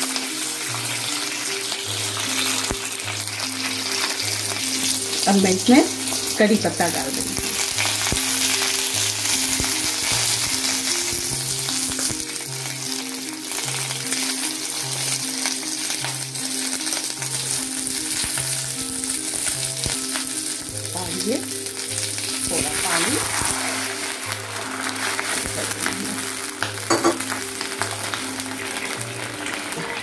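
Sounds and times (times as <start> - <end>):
leaves and chillies sizzling in oil: 0.0 - 30.0
wooden spatula stirring and scraping: 22.4 - 26.4.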